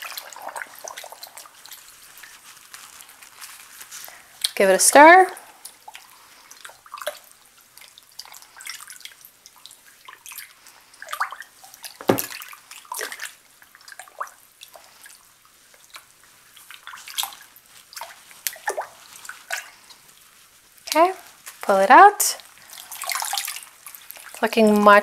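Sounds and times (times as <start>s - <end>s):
water splashing and plopping: 0.0s - 1.8s, 11.0s - 14.4s, 22.7s - 24.4s.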